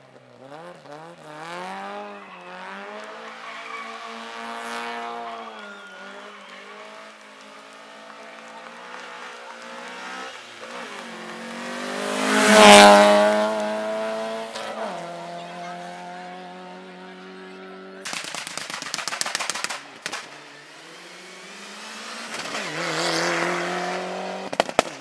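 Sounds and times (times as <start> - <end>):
rally car engine revving: 0.0 - 18.0, 20.3 - 25.0
tyres squealing: 2.1 - 6.6.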